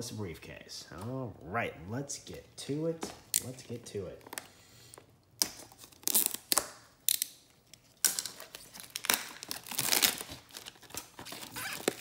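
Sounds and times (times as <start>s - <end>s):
plastic wrap ripping: 5.4s - 7.2s, 8.0s - 12.0s
plastic wrap crinkling: 7.8s - 12.0s.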